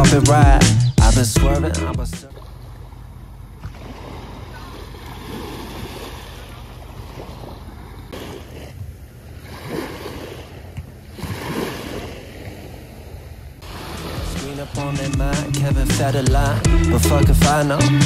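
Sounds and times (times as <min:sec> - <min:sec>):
small waves lapping on sand: 0:02.2 - 0:15.1.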